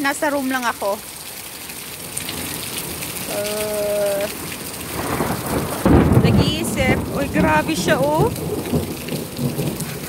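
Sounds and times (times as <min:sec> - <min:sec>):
heavy rain falling: 0:00.0 - 0:10.0
thunder rolling: 0:04.8 - 0:10.0.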